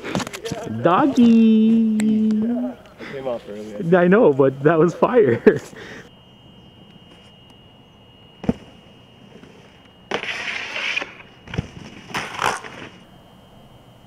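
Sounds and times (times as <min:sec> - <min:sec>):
snowboard scraping: 0:09.4 - 0:13.0.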